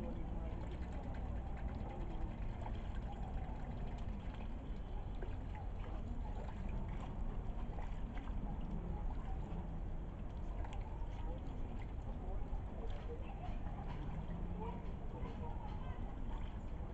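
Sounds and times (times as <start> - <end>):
ducks dabbling in water: 0.0 - 16.9
water lapping and trickling: 0.0 - 16.9
faint clicks: 10.2 - 12.1.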